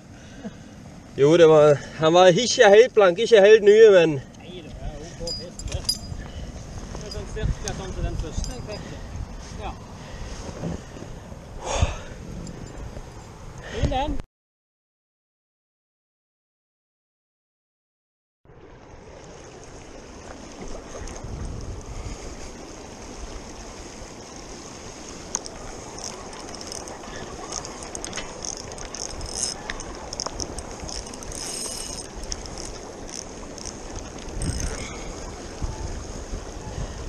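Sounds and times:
wind buffeting microphone: 4.3s - 14.2s, 19.0s - 37.0s
small clicks and rattles: 25.3s - 34.9s.

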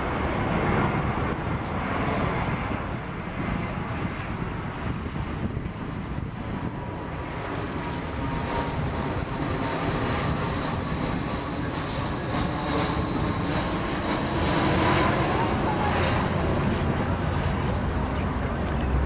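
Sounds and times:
jet plane passing overhead: 0.0s - 19.0s.

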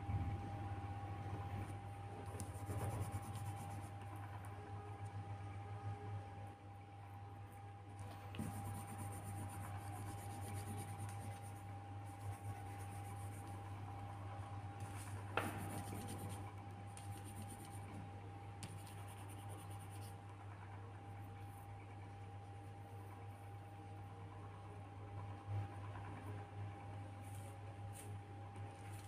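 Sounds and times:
steady low hum: 0.0s - 29.0s
drawing tool scratching paper: 2.3s - 3.9s, 8.4s - 13.6s, 14.9s - 16.4s, 17.0s - 17.8s.

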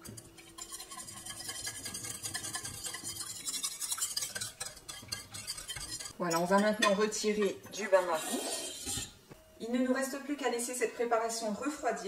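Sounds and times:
whisk scraping in metal saucepan: 0.0s - 9.2s.

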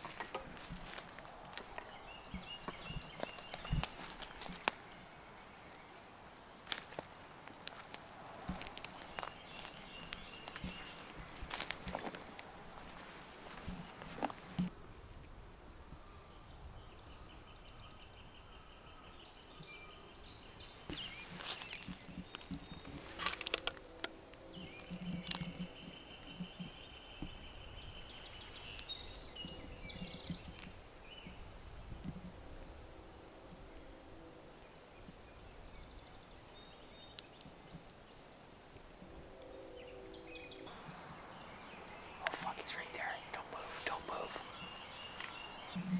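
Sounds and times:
footsteps through dry brush: 0.0s - 5.8s, 6.6s - 14.7s, 20.9s - 26.5s, 40.7s - 45.9s.

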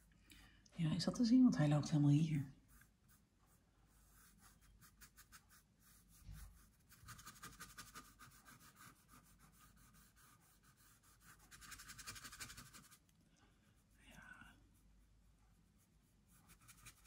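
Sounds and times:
paint brush strokes on canvas: 1.6s - 17.0s.

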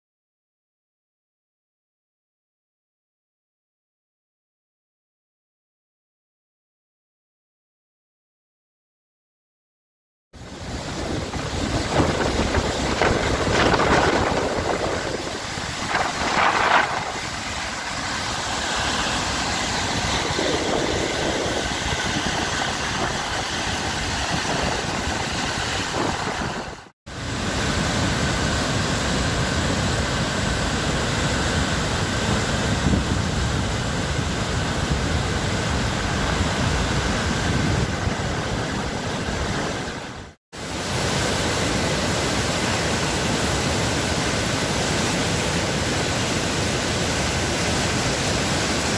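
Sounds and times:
wind on microphone: 10.6s - 30.7s, 31.3s - 40.3s
roar of falling water: 10.6s - 39.9s.

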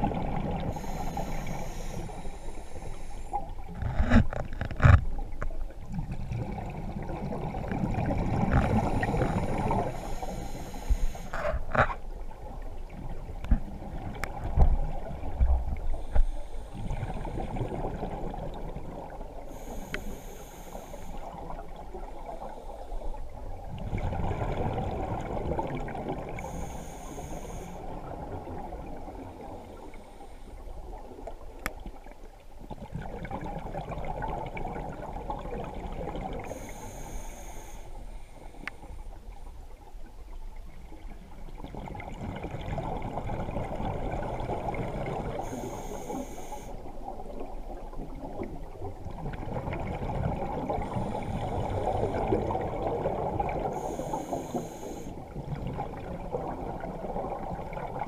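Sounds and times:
underwater exhale bubbles rumbling: 0.0s - 4.4s, 5.2s - 39.4s, 40.8s - 58.0s
hissing inhale through regulator: 0.6s - 3.7s, 8.5s - 11.7s, 15.8s - 17.7s, 19.4s - 21.7s, 26.3s - 28.0s, 29.6s - 30.8s, 36.4s - 39.0s, 45.1s - 46.9s, 50.7s - 52.6s, 53.5s - 55.3s.

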